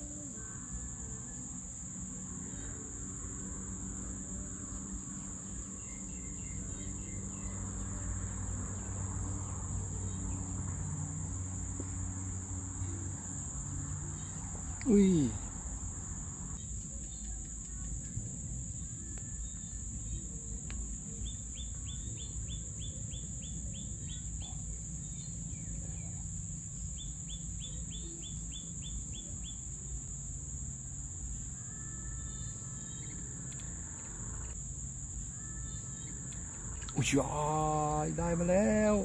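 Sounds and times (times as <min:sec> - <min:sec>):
high-pitched insect drone: 0:00.0 - 0:16.7, 0:17.8 - 0:39.0
low outdoor rumble: 0:00.0 - 0:39.0.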